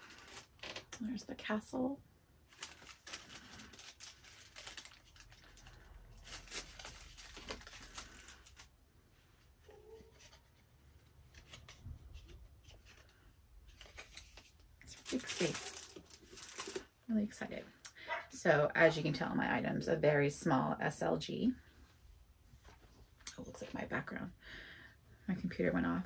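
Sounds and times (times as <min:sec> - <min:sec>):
paper packaging rustling: 0:00.0 - 0:00.6, 0:02.5 - 0:08.7, 0:09.6 - 0:16.9.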